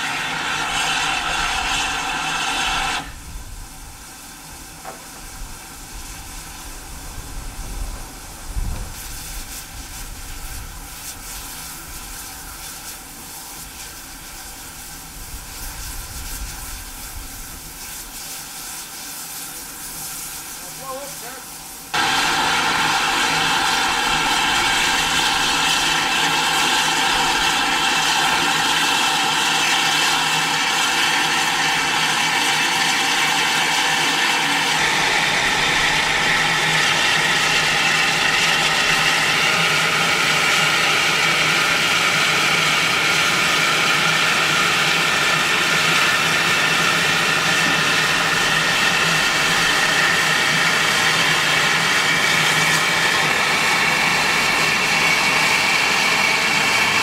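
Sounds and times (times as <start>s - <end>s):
railway turntable drive humming: 0.0s - 8.8s, 21.7s - 57.0s.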